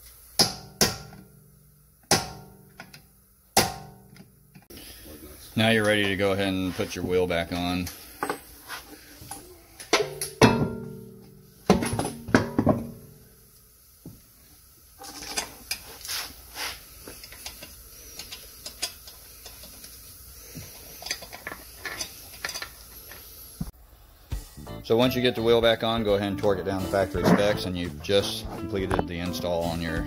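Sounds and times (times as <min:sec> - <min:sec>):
sharp metal knocks ringing: 0:10.0 - 0:11.2.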